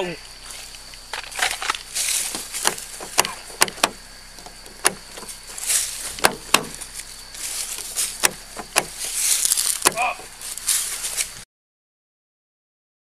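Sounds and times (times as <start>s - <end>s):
rustling: 0.3s - 11.4s
sharp clicks and knocks: 1.0s - 5.4s, 6.0s - 6.9s, 7.8s - 10.0s.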